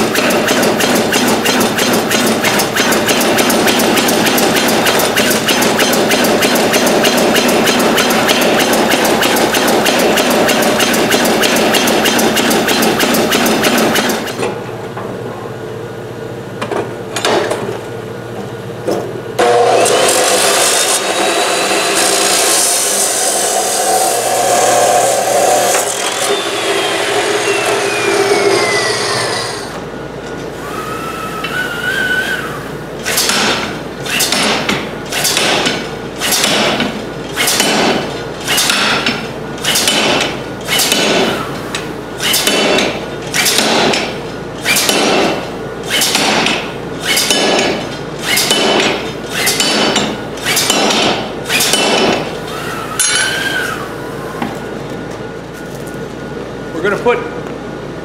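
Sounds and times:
chop saw cutting steel: 0.0s - 14.4s, 19.4s - 29.8s, 33.1s - 36.8s, 37.4s - 39.0s, 39.6s - 41.4s, 42.2s - 52.3s
power hammer striking steel: 0.0s - 14.4s, 19.4s - 29.3s, 33.0s - 41.4s, 42.2s - 52.4s, 53.0s - 53.5s.

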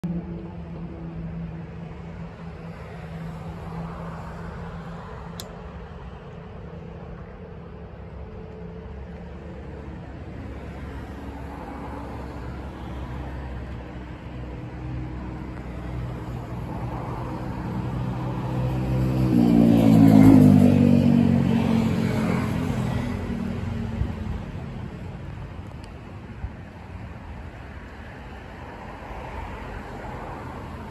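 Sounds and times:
steady traffic hum: 0.0s - 30.9s
vehicle passing by: 10.5s - 25.0s.

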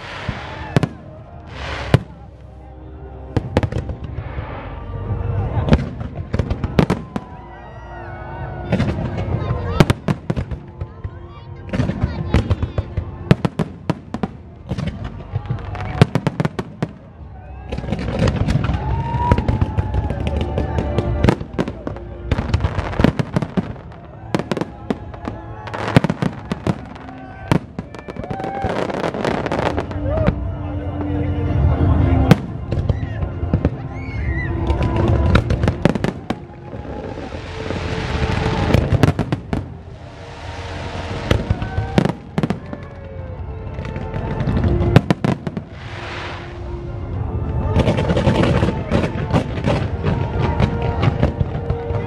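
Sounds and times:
hissing crackle: 0.0s - 2.2s, 36.9s - 42.4s, 45.6s - 46.9s
fireworks bursts and crackling bangs: 0.0s - 30.6s, 31.9s - 52.0s.

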